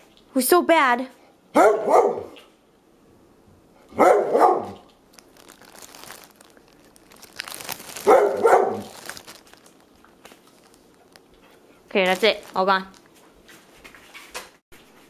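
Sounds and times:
dog barking: 0:01.5 - 0:02.4, 0:03.9 - 0:04.9, 0:08.0 - 0:09.0.

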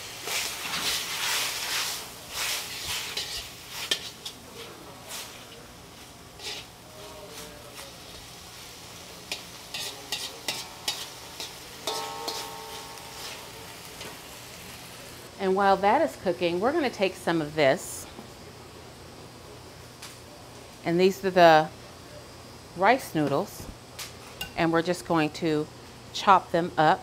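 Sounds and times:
meat sizzling in hot oil: 0:00.0 - 0:04.4, 0:07.9 - 0:15.2.

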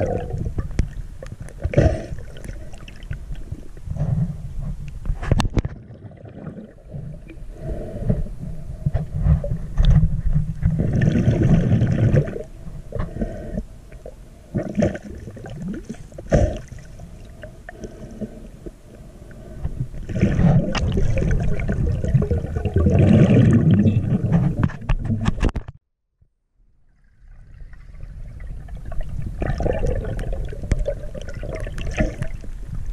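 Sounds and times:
sloshing gurgling water: 0:00.0 - 0:03.8, 0:05.6 - 0:07.5, 0:09.2 - 0:13.2, 0:13.9 - 0:18.4, 0:19.3 - 0:25.5, 0:26.8 - 0:32.9
muffled underwater rumble: 0:00.0 - 0:25.7.

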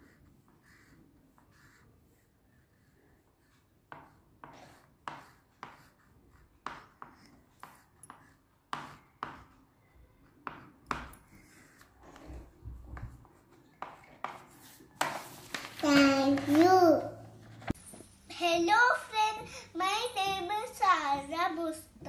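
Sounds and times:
crayon rubbing on paper: 0:00.0 - 0:09.6, 0:10.5 - 0:16.6.

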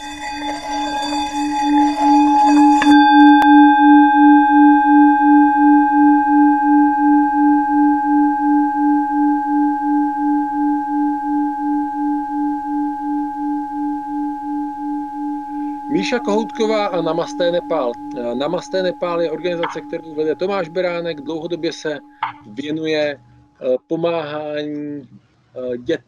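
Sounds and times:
sharp bell strike: 0:00.0 - 0:04.8, 0:15.6 - 0:23.4
pulsing bell-like ringing tone: 0:00.0 - 0:23.7.

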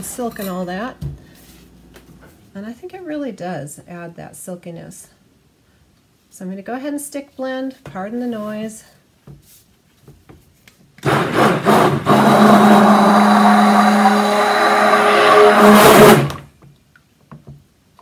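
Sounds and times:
immersion blender running: 0:11.0 - 0:16.4.

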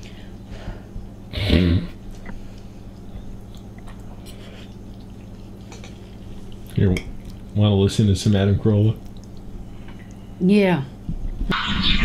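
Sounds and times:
faint chewing: 0:02.0 - 0:07.6, 0:08.7 - 0:10.4.

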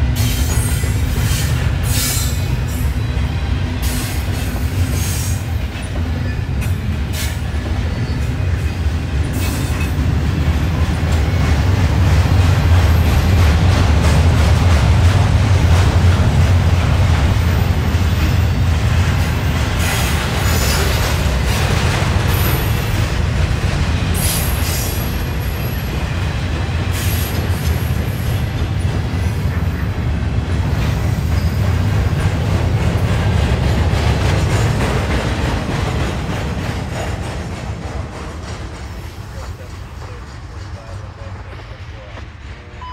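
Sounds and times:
train wheels rumbling on rails: 0:00.0 - 0:42.9
high wheel squeals: 0:07.2 - 0:08.7.

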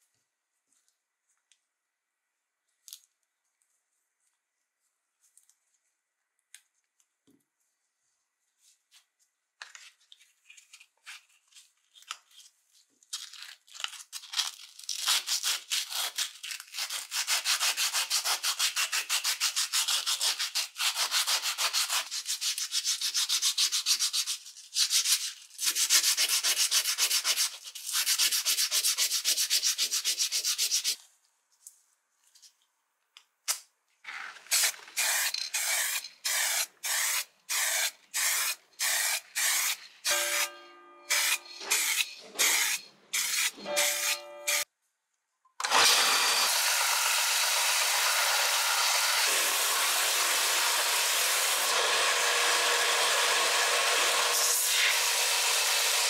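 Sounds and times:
sandpaper scratching on metal: 0:15.1 - 0:31.0, 0:41.1 - 0:44.6
spray paint can rattling: 0:34.3 - 0:40.2.

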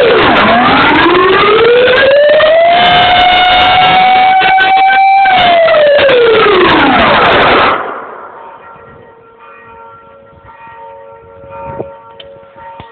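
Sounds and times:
air-raid siren winding down: 0:00.0 - 0:12.9.

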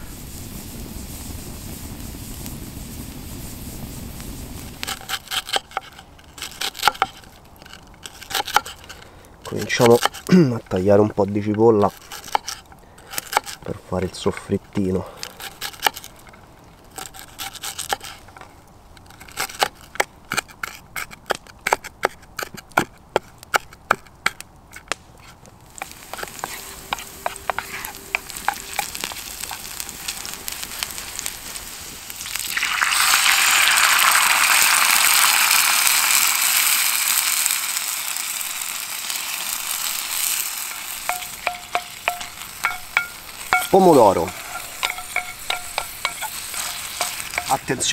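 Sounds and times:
loud sizzle of sauce: 0:00.0 - 0:07.1, 0:25.6 - 0:47.9
onion sizzling in frying pan: 0:00.0 - 0:18.2, 0:25.6 - 0:47.9
wooden spoon stirring: 0:25.7 - 0:30.9, 0:40.7 - 0:47.9.

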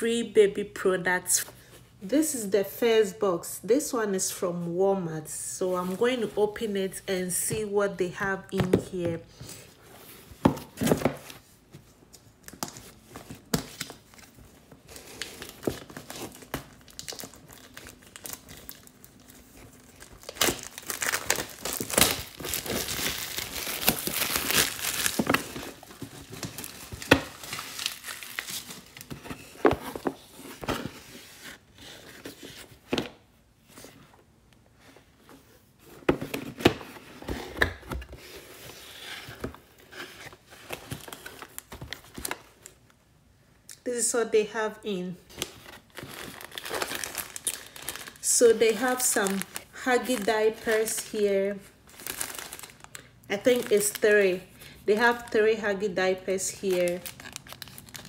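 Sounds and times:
packaging rustling and crinkling: 0:09.6 - 0:33.0, 0:35.2 - 0:42.8, 0:45.3 - 0:55.3, 0:56.7 - 0:58.0.

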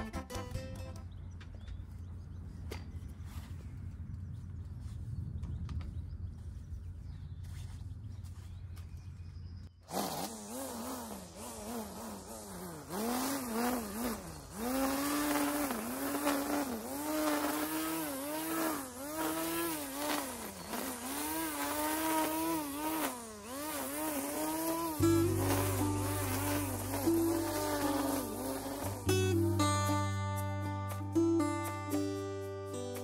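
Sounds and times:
electric string trimmer running: 0:09.8 - 0:31.2.

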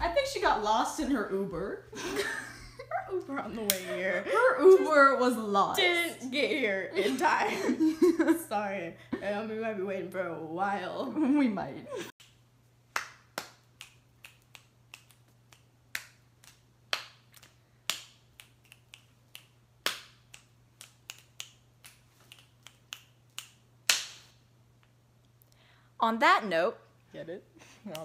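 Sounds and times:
fingers snapping: 0:12.2 - 0:24.9.

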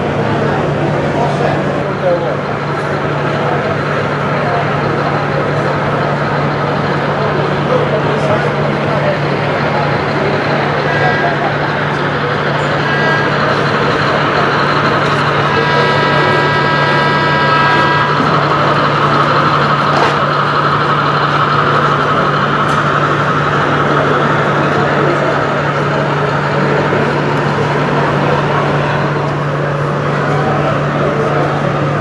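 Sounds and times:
crowd noise in a hall: 0:00.0 - 0:32.0
model locomotive horn chord: 0:10.6 - 0:20.2.

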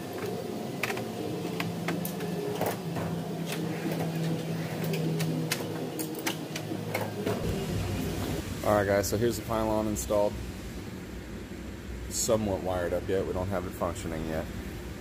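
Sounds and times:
machine hum: 0:00.0 - 0:15.0
hand tools clicking and clinking: 0:00.1 - 0:07.4.

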